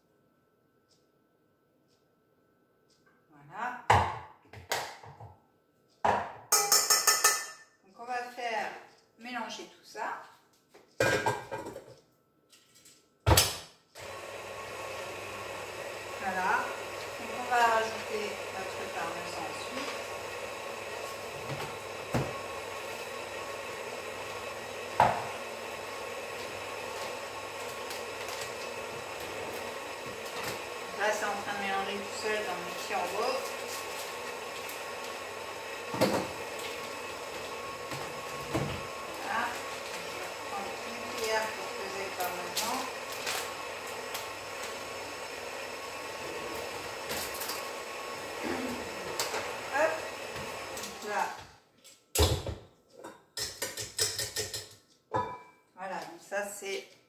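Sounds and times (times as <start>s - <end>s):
food processor running: 14.0s - 51.4s.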